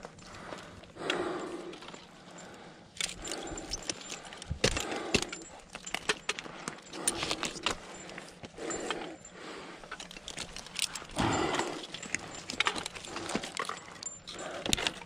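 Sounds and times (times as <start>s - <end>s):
metal hardware clinking: 3.0s - 15.0s.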